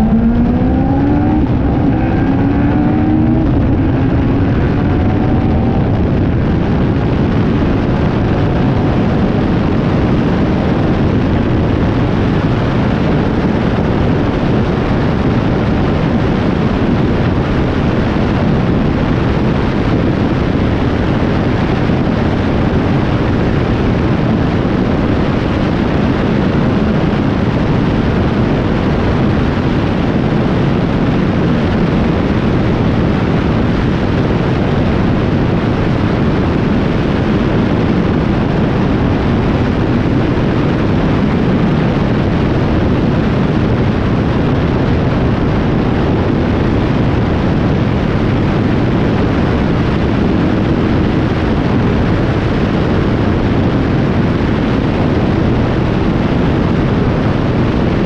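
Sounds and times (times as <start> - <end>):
race car engine and wind rush: 0.0 - 58.0.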